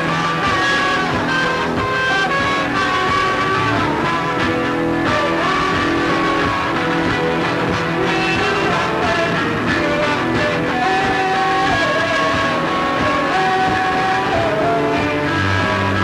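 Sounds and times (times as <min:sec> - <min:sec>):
drums: 0:00.0 - 0:16.0
loud electric guitar: 0:00.0 - 0:16.0
punk rock band playing live: 0:00.0 - 0:16.0.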